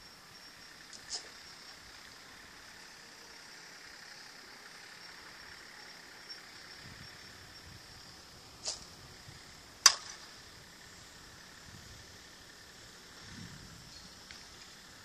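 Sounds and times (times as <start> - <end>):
bat cracking against ball: 9.8 - 10.2.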